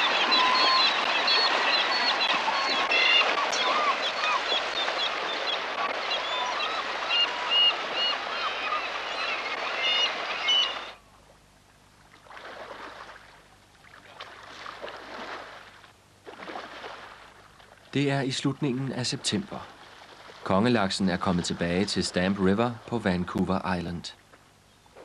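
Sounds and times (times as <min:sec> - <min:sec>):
gulls calling: 0:00.0 - 0:11.0
rushing river: 0:00.0 - 0:11.0
water splashing: 0:00.0 - 0:11.0, 0:12.0 - 0:24.4.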